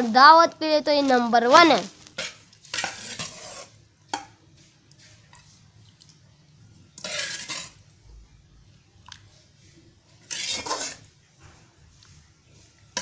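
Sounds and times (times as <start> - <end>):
spoon scraping glass bowl: 2.2 - 3.8, 7.0 - 7.8, 10.2 - 11.1.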